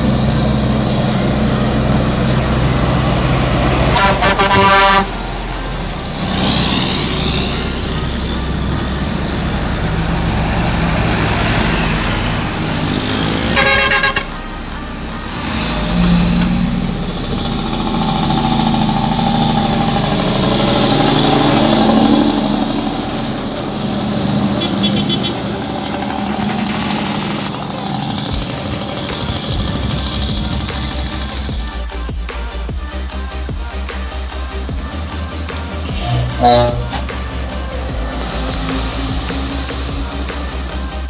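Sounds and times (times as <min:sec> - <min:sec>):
truck diesel engines passing: 0:00.0 - 0:41.0
truck horn blasts: 0:02.8 - 0:27.6, 0:35.8 - 0:39.4.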